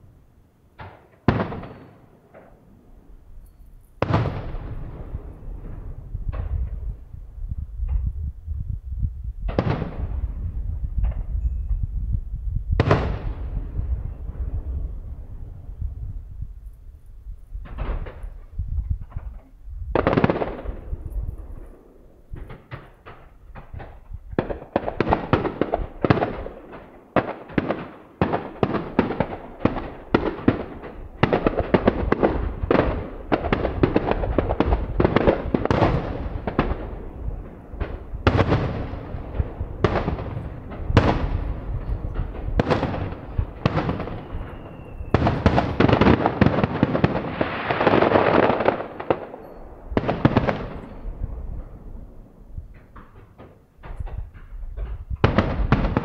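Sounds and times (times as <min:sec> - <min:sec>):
falling firework whistle: 0:43.6 - 0:46.0.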